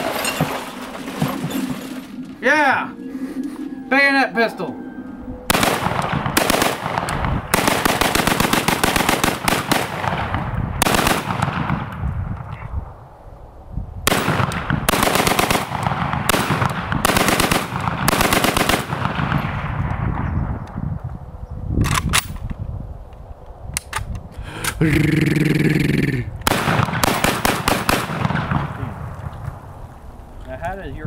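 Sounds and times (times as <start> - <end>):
rapid gunshots: 5.5 - 11.9, 14.1 - 19.4, 26.5 - 28.8.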